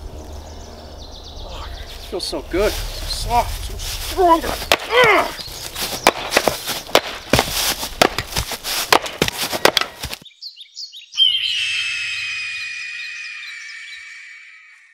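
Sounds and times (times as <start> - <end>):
bird chirps: 0.0 - 3.4, 5.3 - 6.2, 9.6 - 14.9
axe chopping firewood: 4.6 - 10.2.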